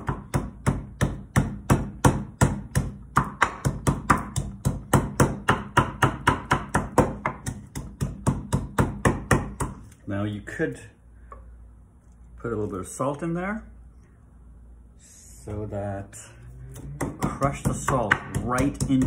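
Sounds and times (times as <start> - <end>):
pestle pounding in wooden mortar: 0.0 - 9.9, 16.8 - 19.0.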